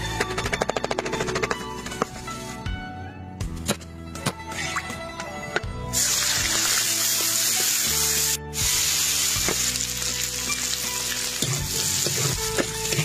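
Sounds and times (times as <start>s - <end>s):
chicken sizzling in hot oil: 6.0s - 13.0s
metal spatula stir-frying: 8.8s - 13.0s.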